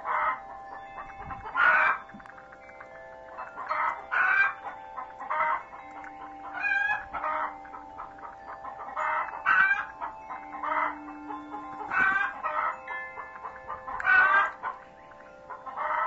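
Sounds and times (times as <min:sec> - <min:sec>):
faint steady hum: 0:00.0 - 0:16.0
chicken clucking: 0:03.6 - 0:12.8, 0:13.4 - 0:14.8, 0:15.6 - 0:16.0.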